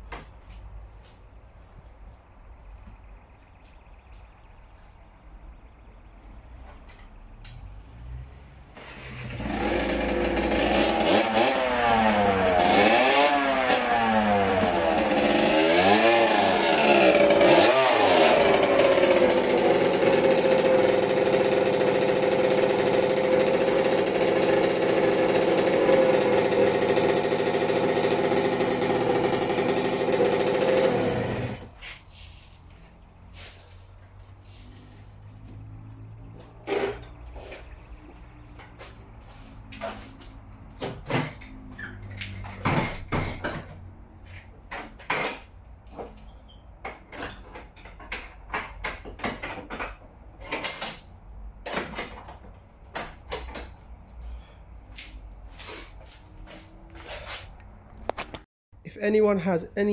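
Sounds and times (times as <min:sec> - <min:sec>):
dirt bike engine revving: 0:08.8 - 0:31.7.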